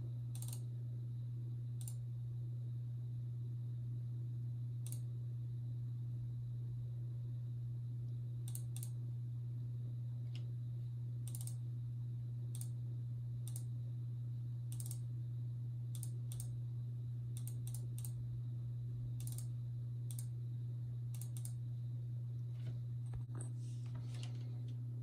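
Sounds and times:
steady low hum: 0.0 - 25.0
computer mouse clicking: 0.3 - 0.7, 1.8 - 2.0, 4.8 - 5.1, 8.5 - 9.0, 11.3 - 11.6, 12.5 - 12.8, 13.5 - 13.7, 14.7 - 15.0, 15.9 - 16.6, 17.4 - 18.2, 19.2 - 19.5, 20.1 - 20.3, 21.1 - 21.6.

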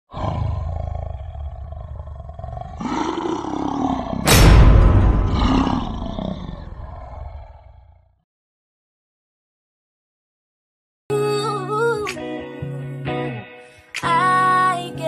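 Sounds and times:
growling roar: 0.1 - 8.2
loud boom: 4.2 - 7.6
low rumble: 4.3 - 7.4.

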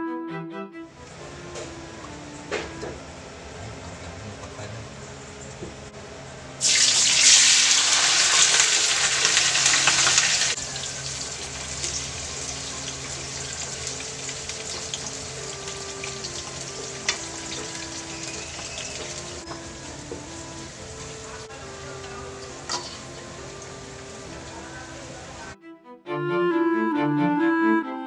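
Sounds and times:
tofu sizzling in hot oil: 6.6 - 19.6
wooden spatula scraping wok: 22.0 - 23.3.

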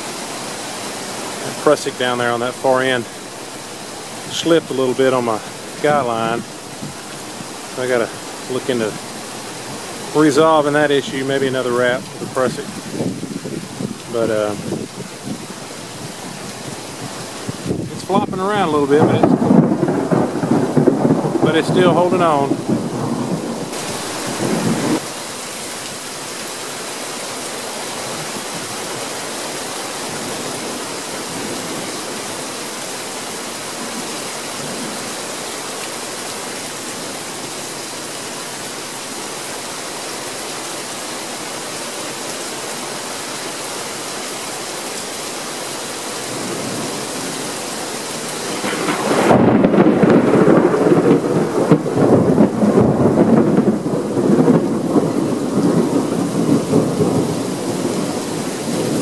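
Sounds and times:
steady rain falling: 0.0 - 59.0
rolling thunder rumble: 4.2 - 25.1, 48.1 - 59.0.

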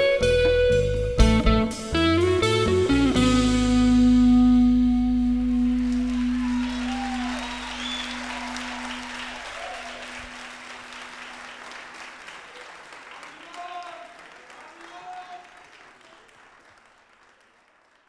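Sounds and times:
live band chord ringing: 0.0 - 12.2
audience applauding and cheering: 5.1 - 18.0.

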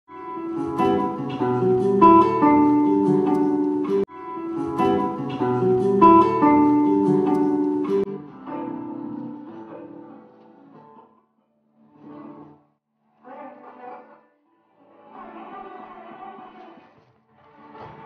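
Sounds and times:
acoustic flamenco guitar: 0.1 - 11.2, 11.8 - 12.7.

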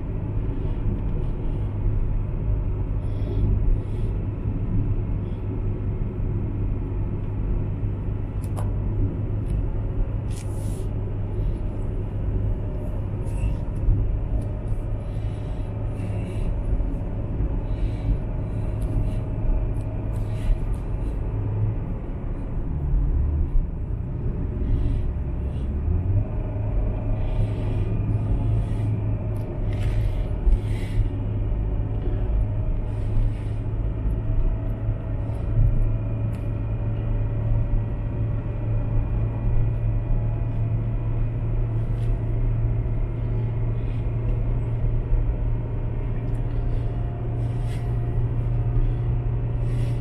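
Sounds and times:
car interior road noise: 0.0 - 50.0.

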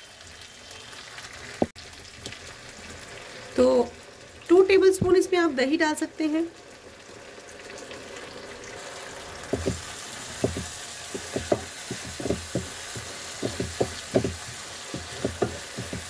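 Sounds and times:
spices sizzling in oil: 0.0 - 16.0
wooden spatula scraping pan: 9.5 - 16.0.

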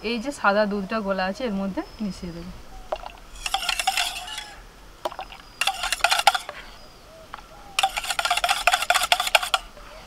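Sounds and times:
whisk clinking in steel bowl: 3.0 - 6.6, 7.8 - 9.7.

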